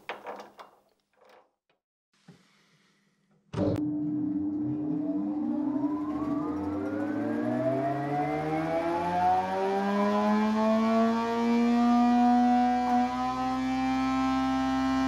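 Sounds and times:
electric motor whine spinning up: 3.8 - 15.0.

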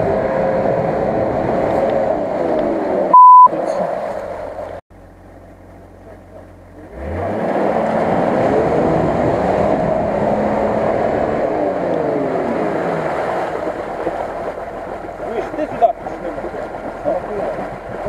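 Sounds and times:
engine revving hard: 6.8 - 13.7.

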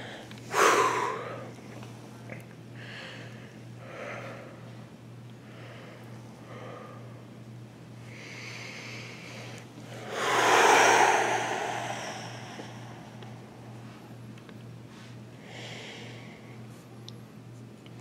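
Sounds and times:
person breathing heavily: 0.0 - 1.5, 9.9 - 14.0
steady low hum: 0.0 - 14.5.

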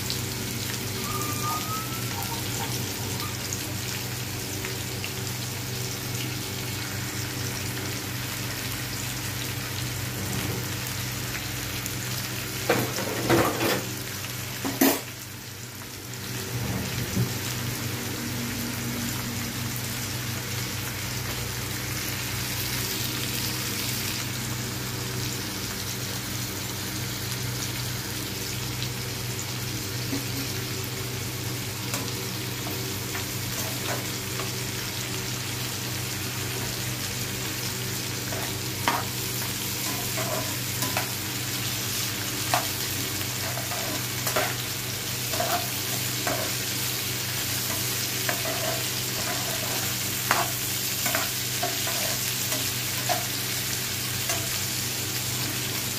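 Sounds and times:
onions sizzling in a frying pan: 0.0 - 55.9
metal spatula scraping a pan: 39.8 - 41.2, 42.5 - 44.6, 45.3 - 46.7, 47.6 - 53.3.

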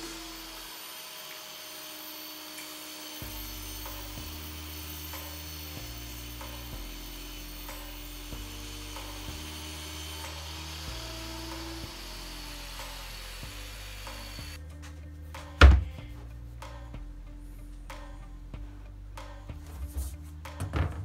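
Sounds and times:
table saw cutting plastic: 0.0 - 14.6.

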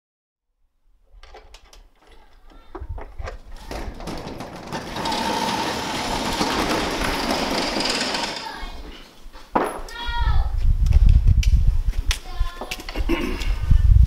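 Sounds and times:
garage door clicks: 1.2 - 8.6
garage door rattling open: 1.2 - 8.8
wind rumble on microphone: 10.0 - 14.0.

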